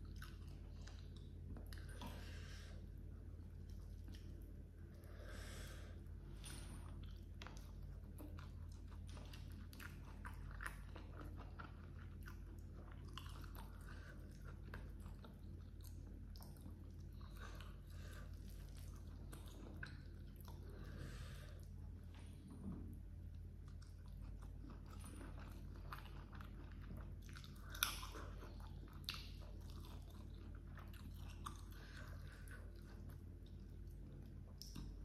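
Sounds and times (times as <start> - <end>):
low hum: 0.0 - 35.0
wet chewing clicks: 23.6 - 35.0.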